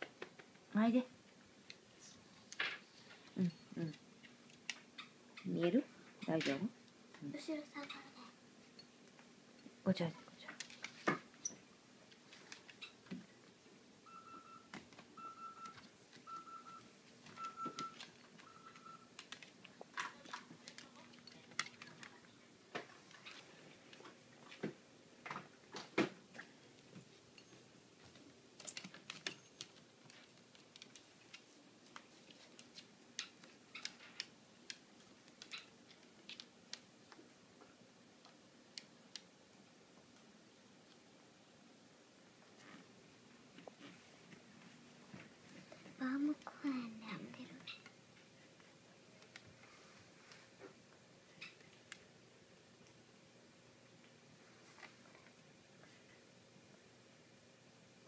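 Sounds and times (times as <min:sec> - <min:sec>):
short electronic beeps: 0:14.1 - 0:16.8.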